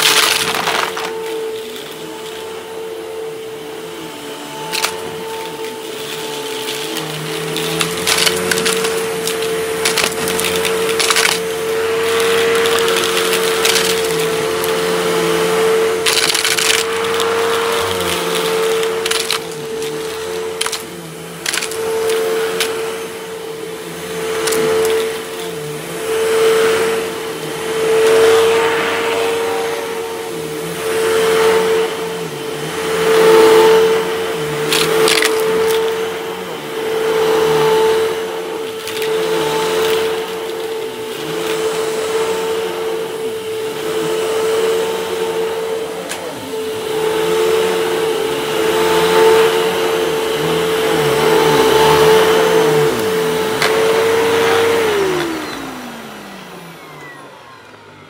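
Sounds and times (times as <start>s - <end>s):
vacuum cleaner motor whine: 0.0s - 58.0s.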